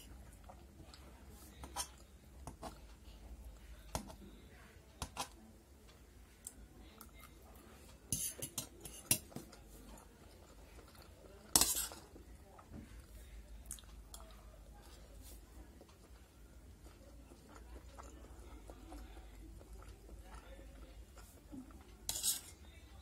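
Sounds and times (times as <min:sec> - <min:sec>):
chewing: 0:00.1 - 0:03.0, 0:06.4 - 0:22.8
cutlery clinking on metal plate: 0:08.1 - 0:09.4, 0:11.6 - 0:12.0, 0:22.1 - 0:22.6.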